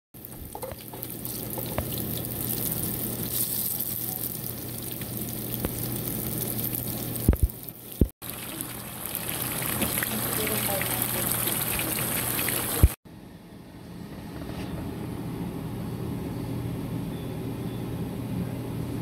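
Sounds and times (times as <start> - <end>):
food sizzling in hot oil: 0.2 - 13.0
small crackles: 0.2 - 13.0
steady low hum: 13.1 - 19.0.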